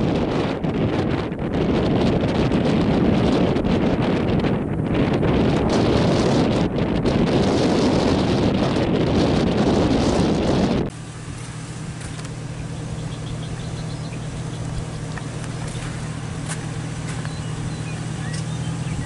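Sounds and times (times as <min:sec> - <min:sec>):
wind buffeting microphone: 0:00.0 - 0:19.0
vehicle engine idling: 0:10.9 - 0:19.0.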